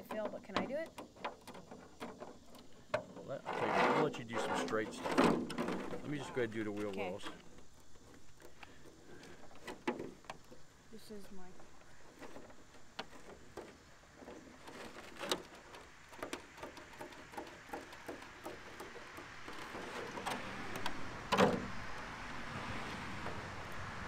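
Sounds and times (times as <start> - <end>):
stiff plastic crackling: 0.0 - 21.8
loud plastic crunch: 12.1 - 21.8.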